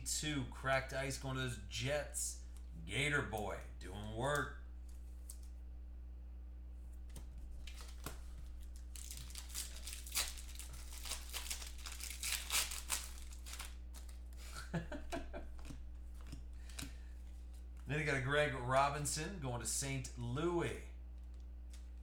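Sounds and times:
low electrical hum: 0.0 - 22.0
cards rubbing and clicking: 7.0 - 14.2
foil wrapper crinkling and tearing: 7.6 - 14.6.

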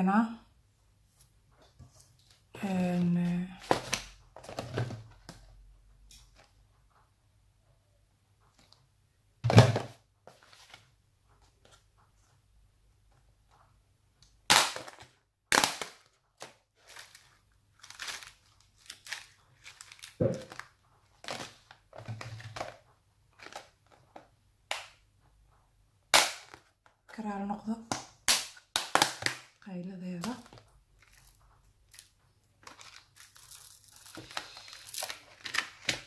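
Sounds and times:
plastic tub rattling and rustling: 19.6 - 24.2
plastic beads clacking: 30.3 - 36.0.

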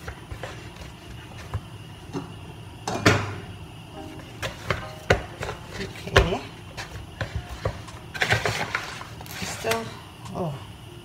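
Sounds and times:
dough kneaded in plastic bowl: 0.0 - 2.1, 4.2 - 9.9.

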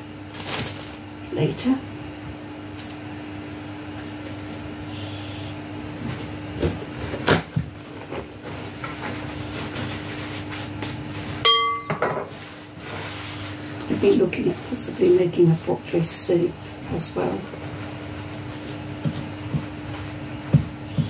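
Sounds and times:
paper towel rustling: 0.0 - 1.1, 6.1 - 11.4, 12.3 - 20.4
steady low hum: 0.0 - 21.0
sharp ringing clink: 11.5 - 12.0.

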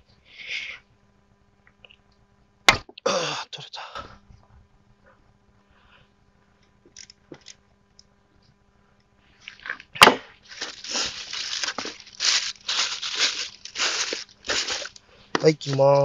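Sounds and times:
cardboard scraping and crumpling: 10.4 - 15.8.

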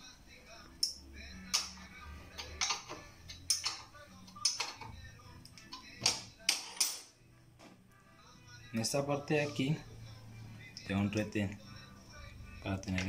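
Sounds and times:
tools clicking against metal: 0.8 - 1.7, 2.4 - 7.1.

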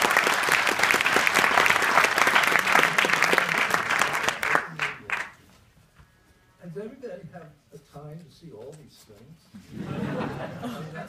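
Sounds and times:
audience applauding: 0.0 - 5.4.

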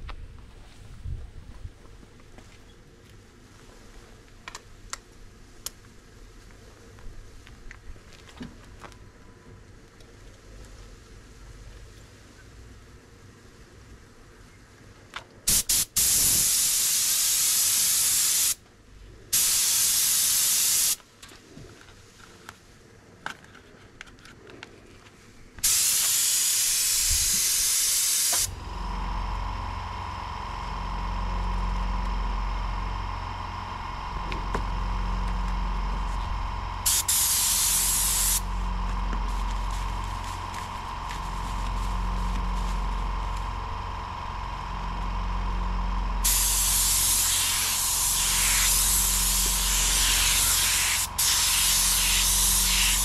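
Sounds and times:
spray gun hissing: 15.5 - 18.6, 19.3 - 21.0, 25.6 - 31.0, 33.6 - 45.1, 46.2 - 53.0
spray gun trigger blips: 15.5 - 18.6, 19.4 - 21.0, 25.6 - 29.4, 34.2 - 45.0, 46.0 - 53.0
machine humming: 25.6 - 53.0.

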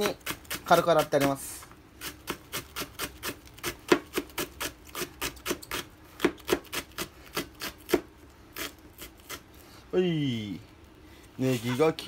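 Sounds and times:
knife chopping on plastic board: 3.9 - 6.8.

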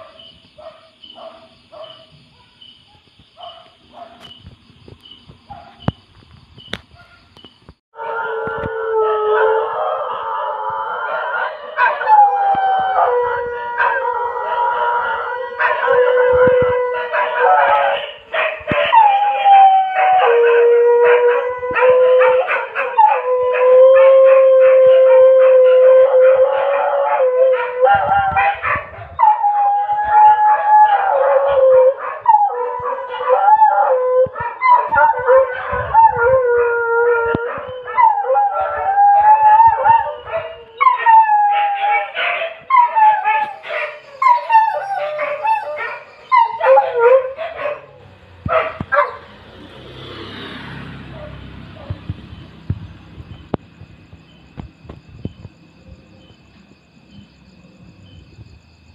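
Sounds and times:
dogs howling: 8.0 - 49.3.

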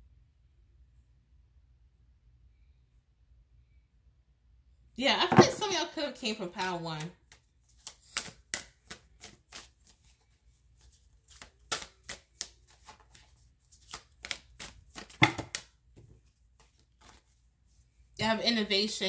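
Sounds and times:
cards flicking and tapping: 7.0 - 10.2, 10.8 - 15.8.

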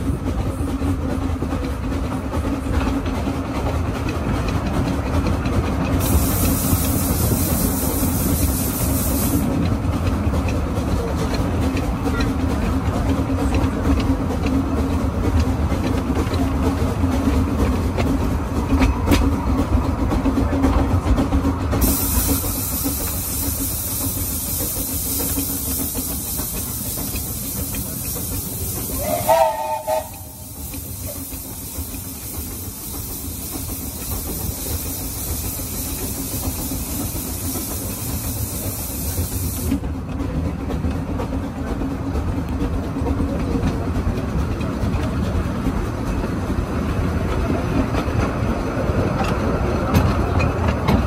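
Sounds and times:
steam locomotive rumble: 0.0 - 51.0
steam hissing: 5.7 - 9.6, 21.7 - 39.9
steam whistle blast: 28.9 - 30.5.

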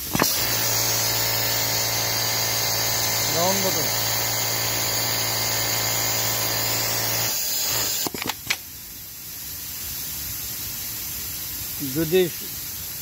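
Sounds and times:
sewing machine running: 0.1 - 8.0
faint steady hiss: 8.1 - 13.0.

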